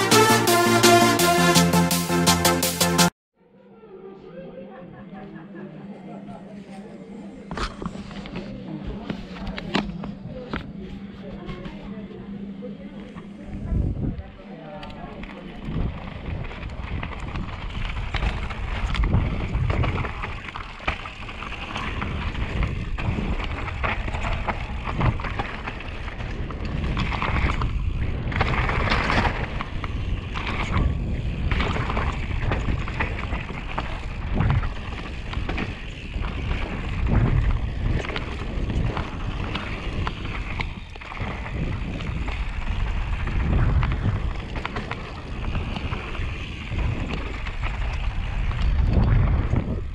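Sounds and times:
low rumble: 9.9 - 49.9
wind on microphone: 13.4 - 14.4, 15.3 - 49.9
tyres crunching on gravel: 15.5 - 49.9.

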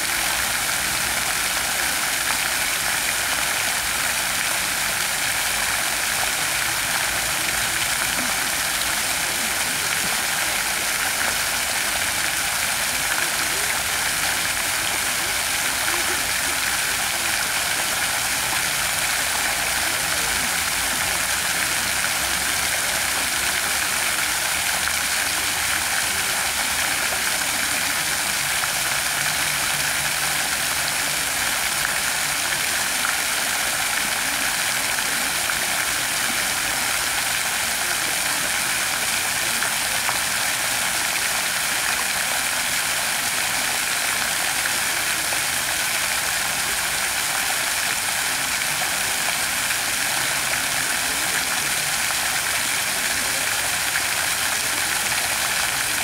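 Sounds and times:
fountain water splashing: 0.0 - 56.0.

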